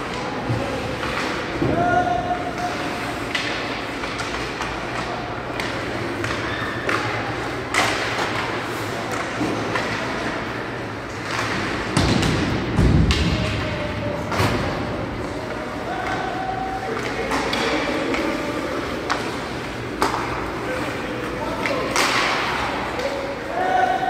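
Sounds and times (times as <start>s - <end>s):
hockey sticks and puck knocking: 2.5s - 23.3s.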